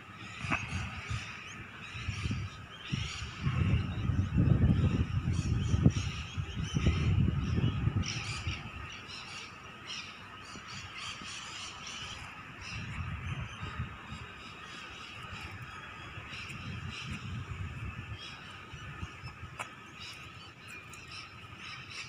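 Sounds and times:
birds calling: 0:00.0 - 0:22.0
wind rumbling on microphone: 0:00.0 - 0:22.0.

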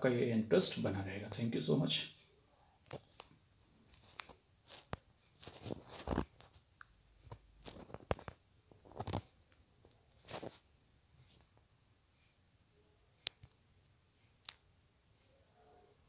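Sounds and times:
smartphone being handled and tapped: 0:07.3 - 0:10.6.

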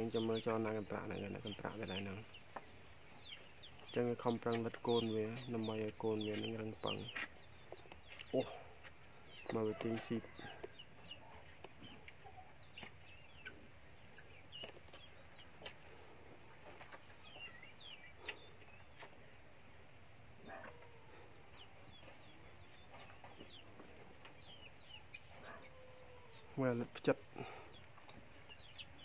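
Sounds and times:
chickens clucking softly: 0:00.0 - 0:29.0
high chirping calls: 0:17.1 - 0:19.1.

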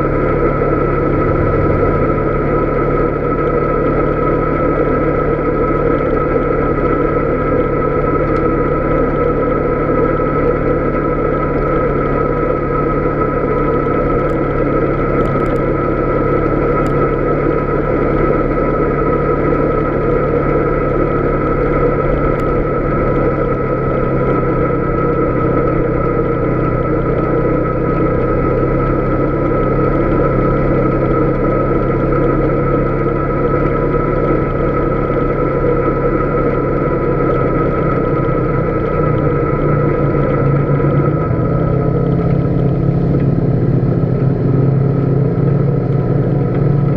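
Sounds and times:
atv engine running: 0:00.0 - 0:46.9
steady mechanical whine: 0:00.0 - 0:46.9.

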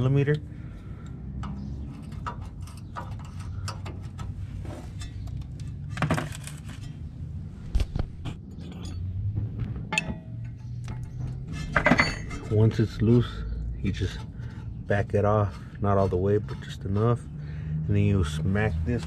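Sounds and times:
loud metal knock: 0:09.2 - 0:11.1.

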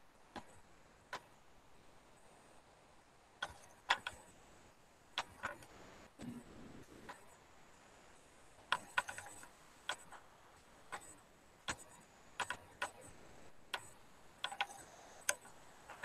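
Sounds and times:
computer clicks: 0:03.4 - 0:04.3, 0:05.1 - 0:06.4, 0:07.0 - 0:07.4, 0:08.7 - 0:10.3, 0:10.9 - 0:16.0.

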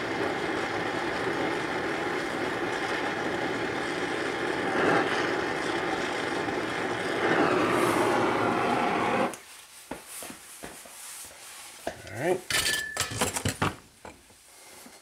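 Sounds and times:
gas torch hissing: 0:00.0 - 0:09.4.

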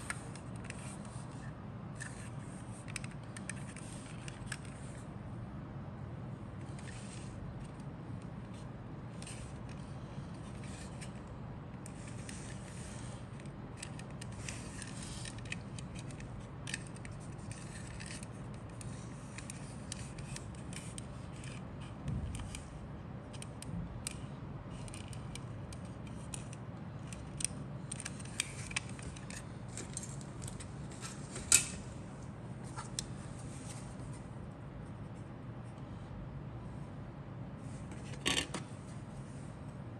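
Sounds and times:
steady low hum: 0:00.0 - 0:39.9
plastic parts clicking and rubbing: 0:11.8 - 0:22.7, 0:23.3 - 0:31.7.

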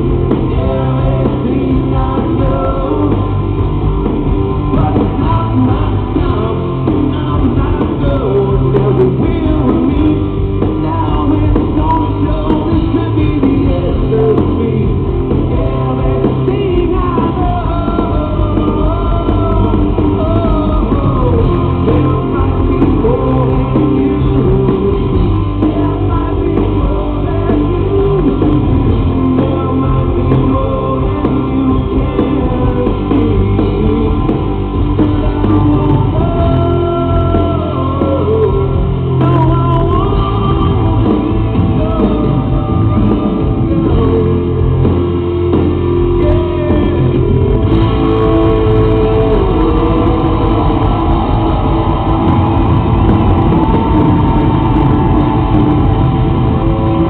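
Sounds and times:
man singing: 0:00.0 - 0:57.0
rock band playing live: 0:00.0 - 0:57.0.

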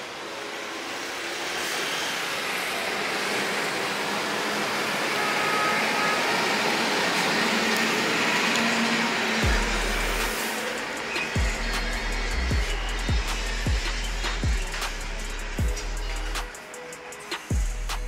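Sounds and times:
intro music: 0:08.4 - 0:18.0.

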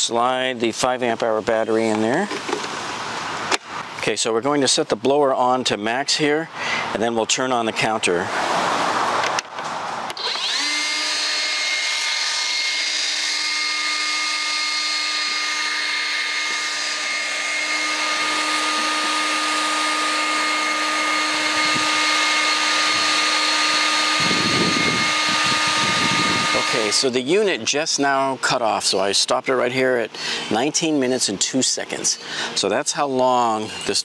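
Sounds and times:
leaf blower whining: 0:10.1 - 0:27.2.

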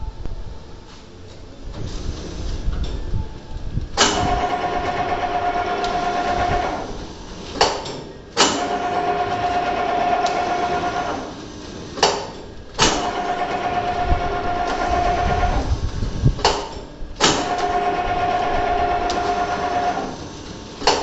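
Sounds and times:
machine clacking sharply: 0:04.0 - 0:06.9, 0:07.6 - 0:11.3
motor whine: 0:04.2 - 0:07.6, 0:13.0 - 0:16.5, 0:17.3 - 0:21.0.

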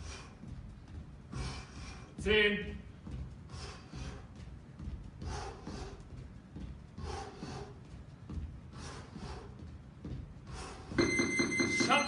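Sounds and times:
man breathing hard: 0:00.0 - 0:02.2, 0:03.3 - 0:11.0.

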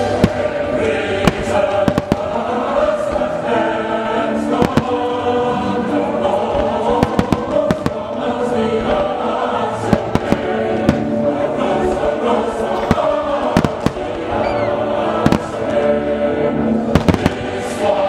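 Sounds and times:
fireworks bangs: 0:00.0 - 0:03.4, 0:04.3 - 0:05.8, 0:06.4 - 0:11.4, 0:12.7 - 0:15.8, 0:16.8 - 0:17.8
choir-like music: 0:00.0 - 0:18.0.

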